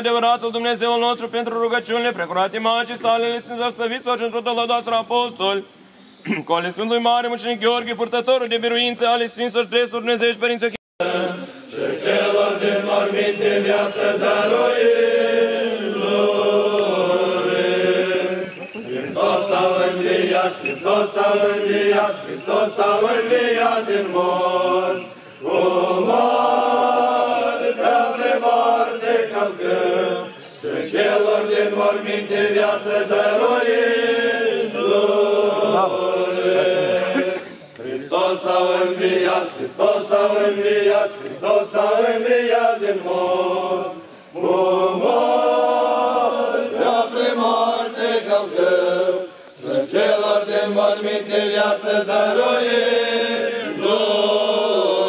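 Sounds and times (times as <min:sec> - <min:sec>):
choir chanting a cappella: 0:11.0 - 0:55.0.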